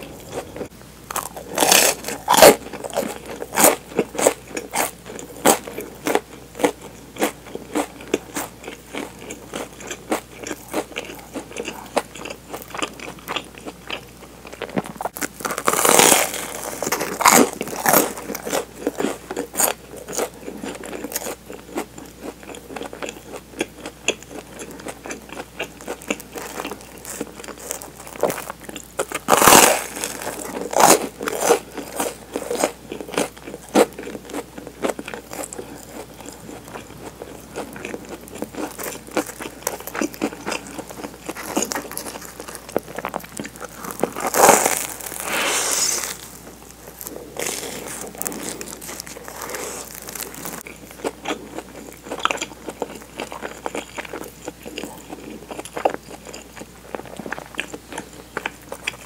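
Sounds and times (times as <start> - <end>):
crunchy bites of toast: 0.2 - 59.0.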